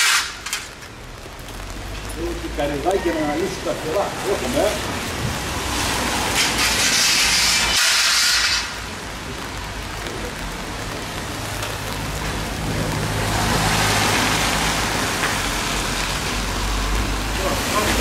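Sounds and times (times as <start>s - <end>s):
tyres hissing on wet road: 0.0s - 18.0s
vehicle engine hum: 8.9s - 18.0s.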